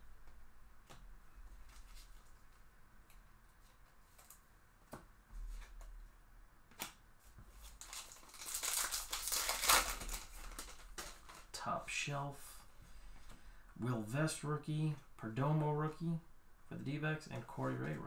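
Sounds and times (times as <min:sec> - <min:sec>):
foil wrapper tearing and crinkling: 0:07.6 - 0:11.6.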